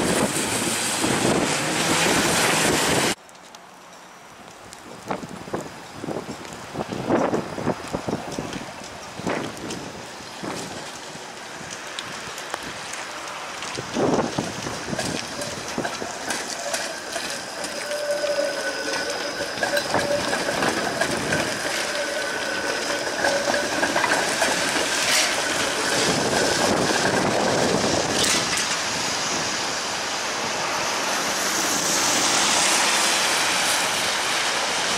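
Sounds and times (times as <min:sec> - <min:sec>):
car tyres hissing on wet road: 0:00.0 - 0:03.2, 0:05.3 - 0:34.9
steady streetcar whine: 0:00.0 - 0:03.2, 0:03.8 - 0:34.9
streetcar passing on wet track: 0:00.0 - 0:03.6, 0:04.2 - 0:34.9
rain and wet road hiss: 0:00.0 - 0:34.9
wheels clicking over rails: 0:08.3 - 0:29.0.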